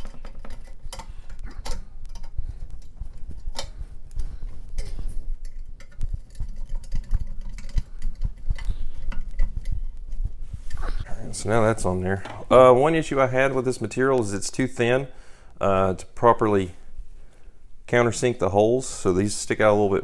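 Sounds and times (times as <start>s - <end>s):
small clicks and taps of metal parts: 0.0s - 10.8s.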